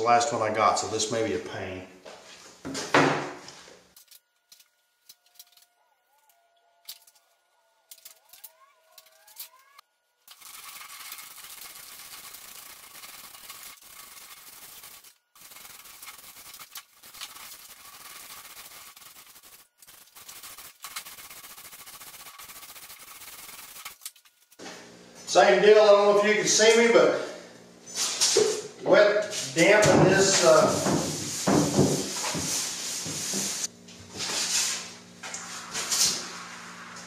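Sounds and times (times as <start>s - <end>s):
paint roller rolling wet glue: 10.2s - 24.1s.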